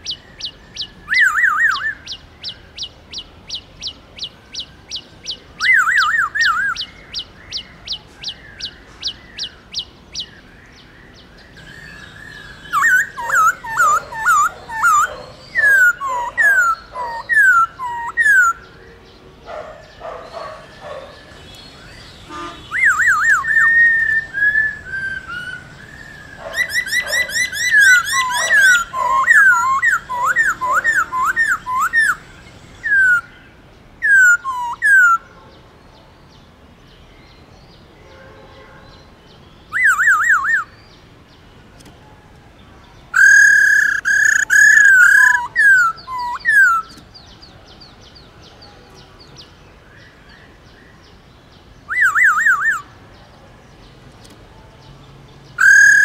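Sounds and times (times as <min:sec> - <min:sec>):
bird singing whistled phrases: 0:00.0 - 0:08.8, 0:11.6 - 0:18.6, 0:21.7 - 0:32.2, 0:34.0 - 0:35.2, 0:39.7 - 0:40.8, 0:43.2 - 0:47.0, 0:51.9 - 0:52.9, 0:55.6 - 0:56.0.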